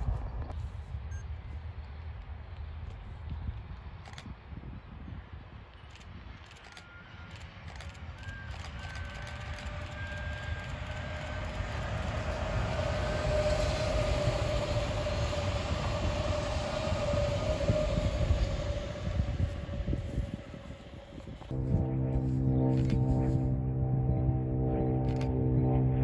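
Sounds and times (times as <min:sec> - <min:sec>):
train whine: 0:05.9 - 0:26.0
train wheels rumbling on rails: 0:06.4 - 0:21.6.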